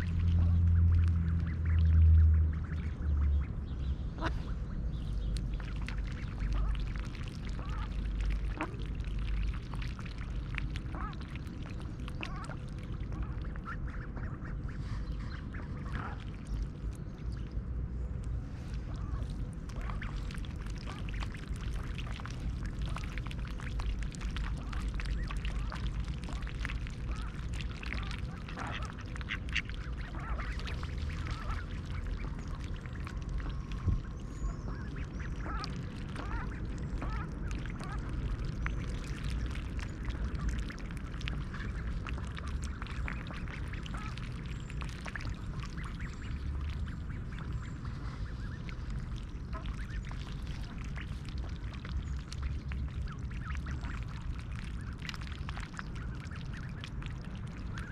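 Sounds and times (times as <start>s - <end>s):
steady low rumble: 0.0s - 57.9s
duck bills dabbling clicks: 0.1s - 3.5s, 5.1s - 16.7s, 18.2s - 57.9s
ducks quacking: 4.2s - 4.6s, 10.8s - 11.3s, 24.4s - 33.5s, 34.4s - 38.4s, 41.3s - 44.4s.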